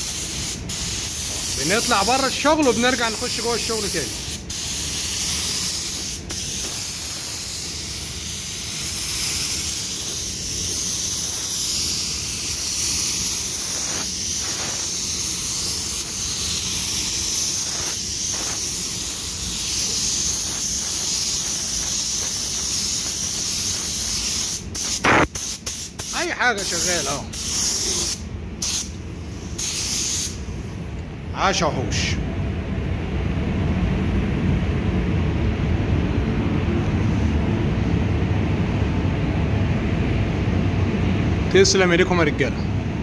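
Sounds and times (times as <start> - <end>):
spray gun hissing: 0.0 - 30.6.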